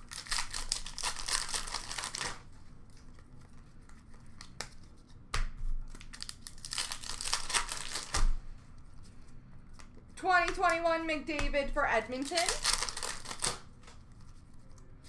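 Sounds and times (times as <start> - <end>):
plastic wrappers crinkling and tearing: 0.0 - 5.0, 5.8 - 8.4, 12.2 - 14.2.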